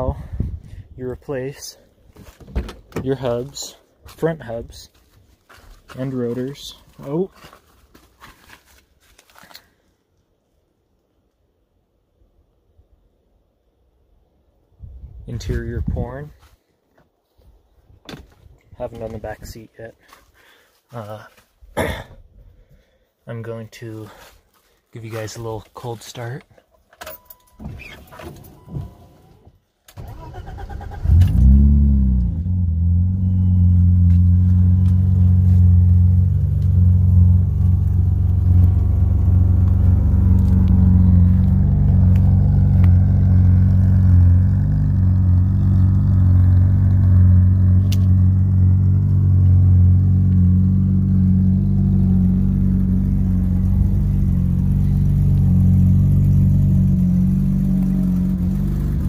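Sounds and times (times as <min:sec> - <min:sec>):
car engine idling: 0:32.2 - 0:59.0.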